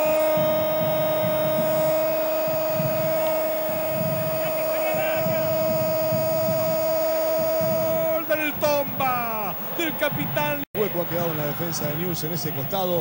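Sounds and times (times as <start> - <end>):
faint pulsing low rumble: 0.0 - 10.4
steady hum with overtones: 0.0 - 13.0.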